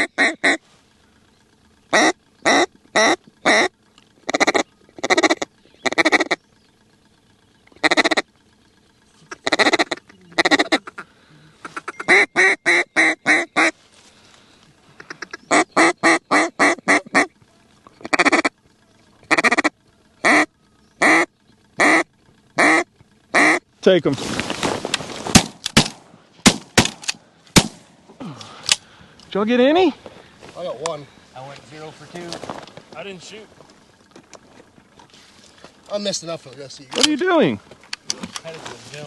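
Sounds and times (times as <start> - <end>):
duck call quacks: 0.0 - 0.6, 1.9 - 6.4, 7.8 - 8.3, 9.2 - 13.8, 14.9 - 17.4, 18.0 - 18.6, 19.2 - 23.6.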